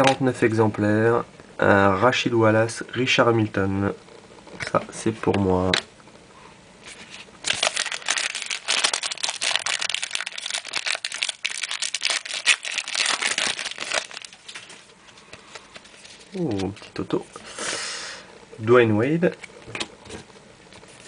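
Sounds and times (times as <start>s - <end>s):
wrapper crinkling: 6.9s - 17.0s.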